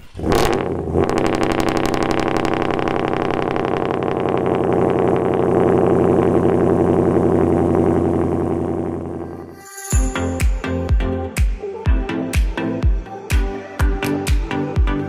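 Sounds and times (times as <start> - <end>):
truck engine idling loudly: 0.0 - 9.3.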